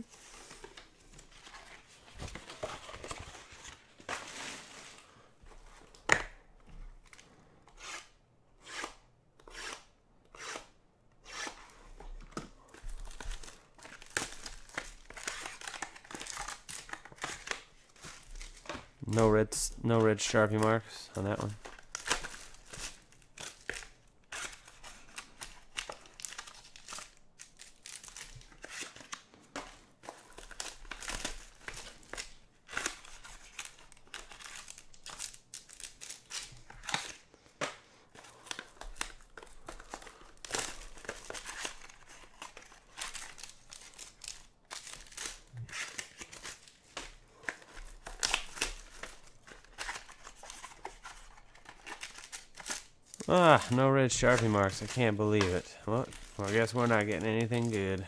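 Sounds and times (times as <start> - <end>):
foil wrappers crinkling and tearing: 12.6 - 29.3, 30.0 - 37.3, 38.1 - 58.0.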